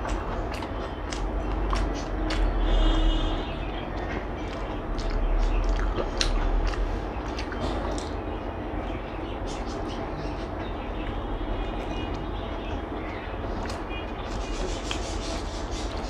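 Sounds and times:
chewing with mouth clicks: 0:00.0 - 0:08.3
steady low rumble: 0:00.0 - 0:16.0.

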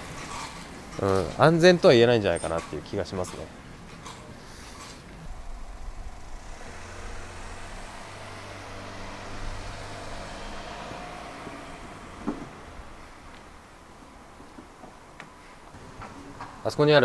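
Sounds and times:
car engine humming: 0:05.0 - 0:15.4.

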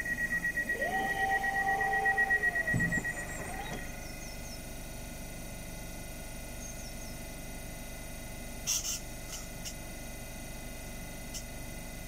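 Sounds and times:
train equipment humming: 0:00.0 - 0:07.2.

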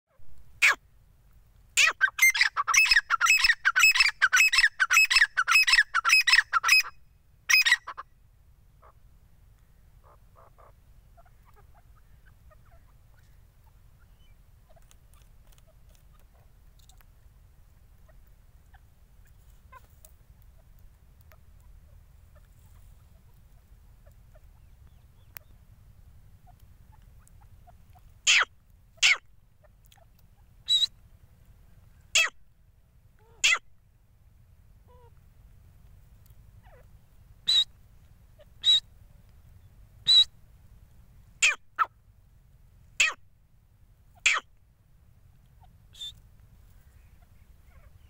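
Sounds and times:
francolin calling: 0:01.8 - 0:08.2, 0:09.6 - 0:17.1, 0:26.4 - 0:31.0, 0:36.6 - 0:37.8, 0:38.4 - 0:40.4, 0:44.1 - 0:44.6, 0:45.5 - 0:48.0.

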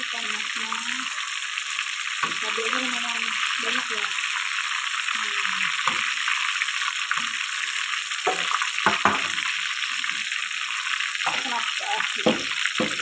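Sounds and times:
oil sizzling in a frying pan: 0:00.0 - 0:13.0
knocks and clatters in a mortar: 0:12.2 - 0:13.0.

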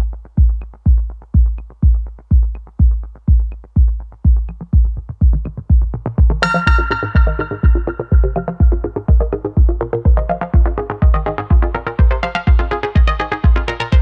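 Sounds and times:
drum machine kick: 0:00.0 - 0:14.0
ticking hi-hats: 0:00.0 - 0:14.0
bright synth chord: 0:06.4 - 0:09.3.

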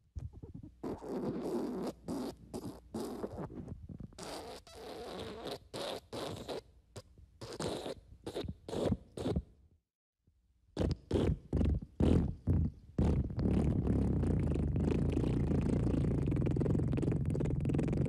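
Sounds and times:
raspy farts: 0:00.4 - 0:06.6, 0:10.8 - 0:18.0.

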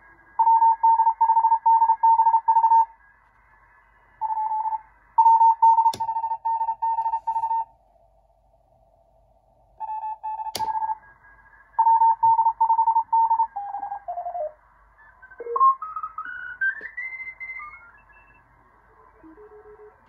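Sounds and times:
morse code tones: 0:00.4 - 0:03.0, 0:04.2 - 0:07.7, 0:09.8 - 0:18.6
sharp click: 0:10.5 - 0:10.8.

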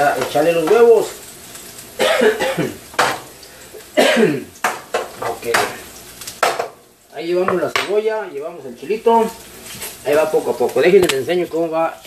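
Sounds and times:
man coughing: 0:02.0 - 0:02.8, 0:04.0 - 0:04.5.

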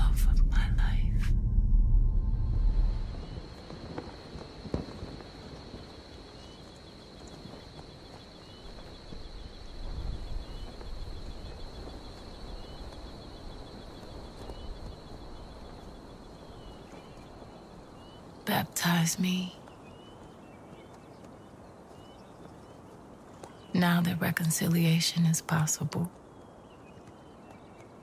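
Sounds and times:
low rumble: 0:00.0 - 0:04.6.

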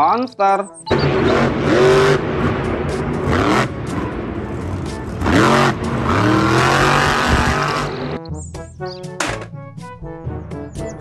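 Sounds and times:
car engine revving: 0:00.9 - 0:08.2
steady rushing noise: 0:01.0 - 0:08.2.

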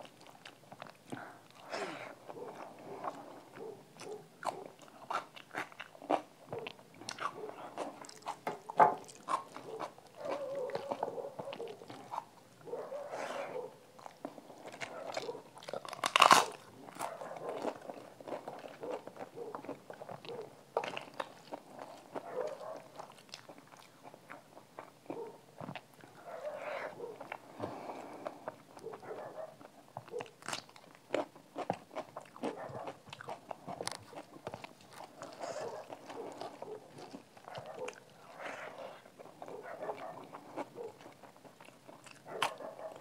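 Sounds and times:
person chewing food: 0:00.0 - 0:43.0
crunch of cracker bitten: 0:14.0 - 0:25.8, 0:30.2 - 0:42.6.

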